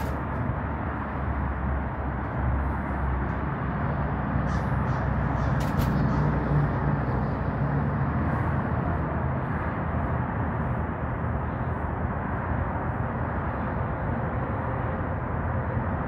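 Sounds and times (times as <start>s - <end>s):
outdoor background rumble: 0.0s - 16.0s.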